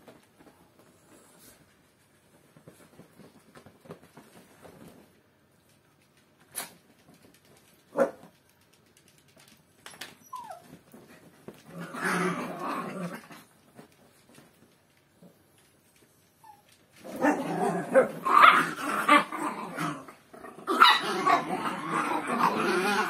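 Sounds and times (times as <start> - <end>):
faint rustling: 0.0 - 18.7
dog whining: 10.1 - 10.8
dog yipping: 10.2 - 10.8
dog growling: 11.6 - 13.5, 17.0 - 23.0.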